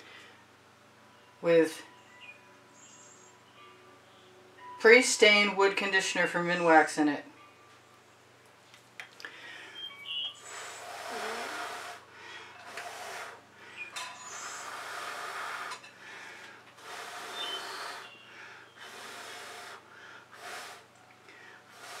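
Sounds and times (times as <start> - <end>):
person blowing hard: 10.4 - 22.0.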